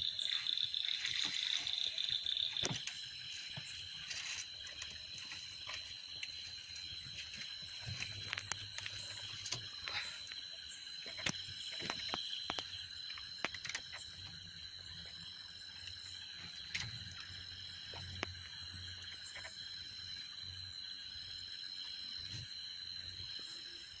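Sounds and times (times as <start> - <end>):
night insects trilling: 0.0 - 24.0
clicks and knocks from handling net: 2.6 - 6.4.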